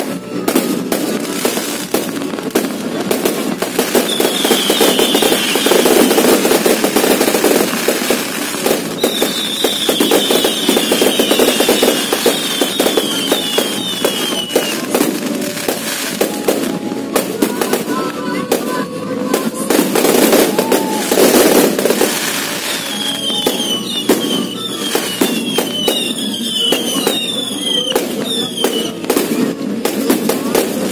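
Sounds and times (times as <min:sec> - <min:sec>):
fireworks bangs: 0:00.0 - 0:30.9
fireworks crackling: 0:00.0 - 0:30.9
short falling whistles: 0:04.0 - 0:05.9, 0:22.7 - 0:29.0.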